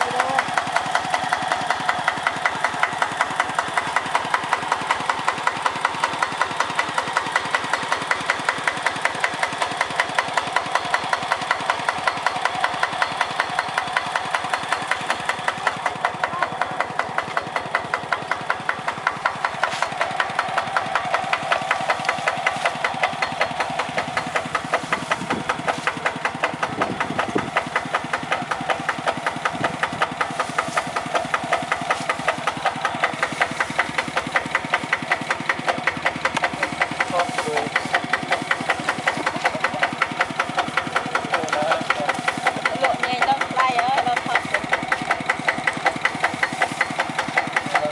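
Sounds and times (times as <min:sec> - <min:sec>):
small engine idling with knocking: 0:00.0 - 0:47.9.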